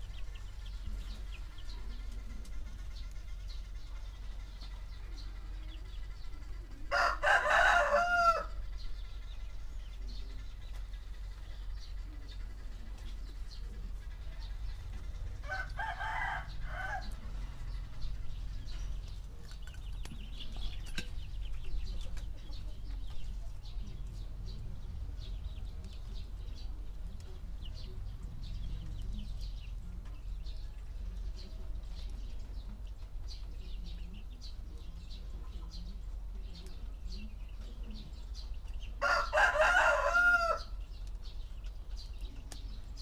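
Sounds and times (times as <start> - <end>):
low background rumble: 0.0 - 43.0
small birds chirping: 0.0 - 43.0
rooster crowing: 6.9 - 8.6, 15.4 - 17.2, 39.0 - 40.8.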